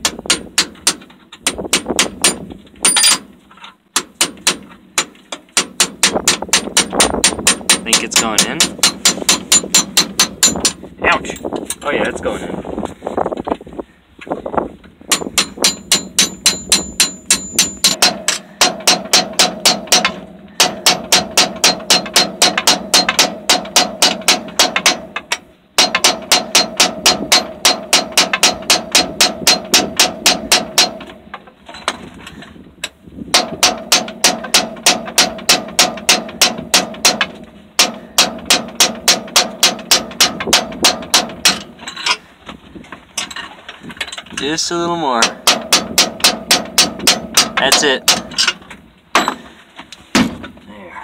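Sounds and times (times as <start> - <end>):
hammer striking steel punch: 4.0 - 10.8, 15.1 - 31.1, 33.4 - 41.7, 45.2 - 48.5.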